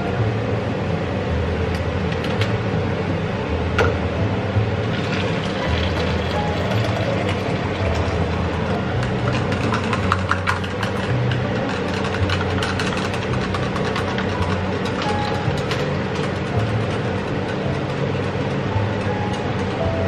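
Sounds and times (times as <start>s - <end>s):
steady low hum: 0.0s - 20.0s
water pouring into a jug: 4.8s - 10.0s.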